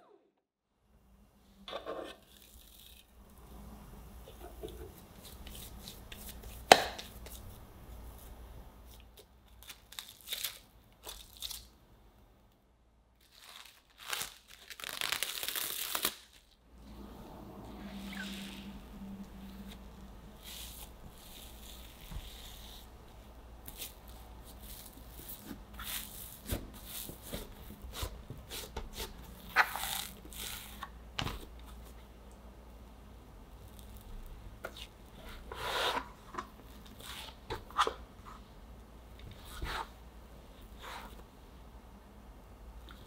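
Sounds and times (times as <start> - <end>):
dough squishing and tearing: 13.2 - 16.6.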